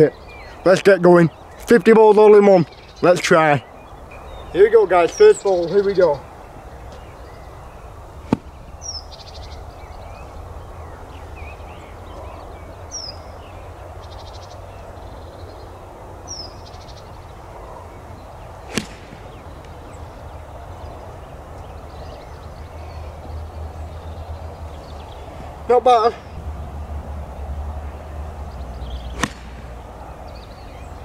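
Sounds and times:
golf club striking ball: 0:08.2 - 0:08.6, 0:18.7 - 0:19.8, 0:28.9 - 0:30.0
bird calls sliding downward: 0:18.6 - 0:20.2.

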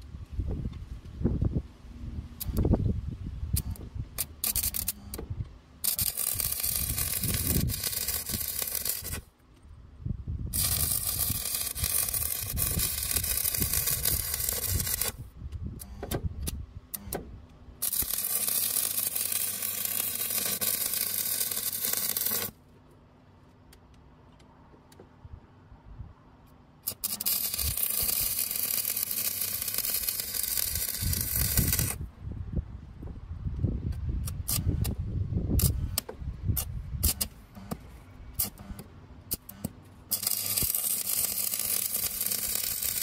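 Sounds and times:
welding rod striking clicks: 0:02.4 - 0:02.7, 0:03.6 - 0:05.2
welding arc crackling and hissing: 0:03.6 - 0:05.1, 0:05.8 - 0:09.3, 0:10.5 - 0:15.3, 0:17.8 - 0:22.6, 0:26.8 - 0:32.0, 0:38.4 - 0:43.0.

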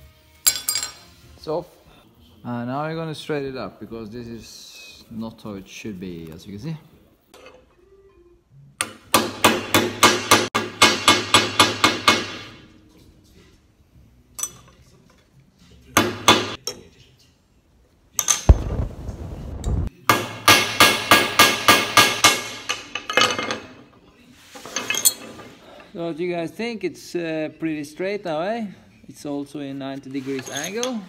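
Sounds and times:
hammer striking steel: 0:08.8 - 0:12.6, 0:16.0 - 0:16.6, 0:20.0 - 0:22.9.

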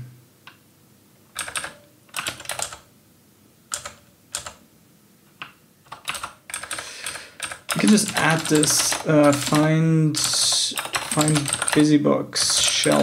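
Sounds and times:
computer keyboard typing: 0:01.4 - 0:02.9, 0:03.7 - 0:04.6, 0:05.4 - 0:13.0.

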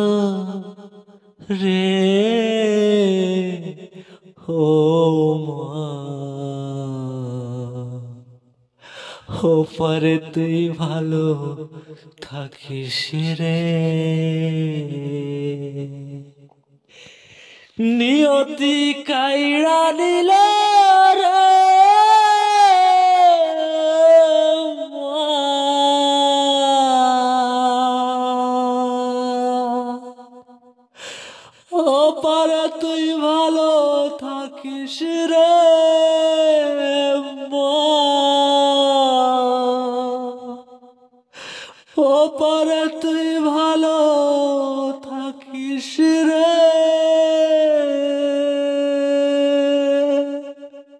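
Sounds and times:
person singing: 0:00.0 - 0:00.8, 0:17.6 - 0:30.4, 0:31.6 - 0:40.7, 0:41.7 - 0:50.9
singer breathing: 0:04.0 - 0:04.3, 0:08.8 - 0:09.3, 0:16.8 - 0:17.8, 0:30.9 - 0:31.7, 0:41.3 - 0:42.0
person singing long notes: 0:17.8 - 0:30.2.

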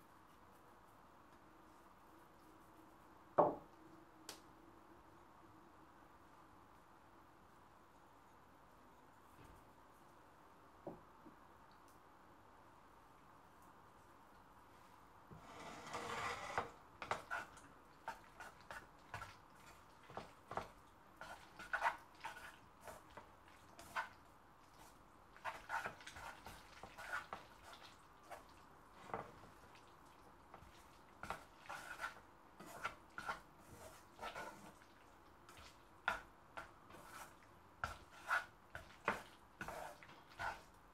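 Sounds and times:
wet squishes of pasta mixing: 0:16.6 - 0:40.9.

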